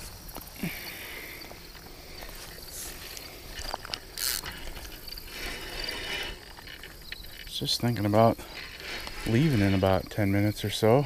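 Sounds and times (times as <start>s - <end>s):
insects chirping: 0.0s - 11.0s
clicks and rustles: 1.7s - 10.2s.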